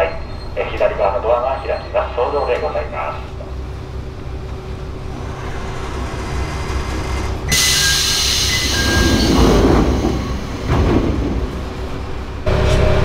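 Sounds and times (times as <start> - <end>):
train passing: 0.0 - 13.0
wheels clattering on rails: 3.3 - 13.0.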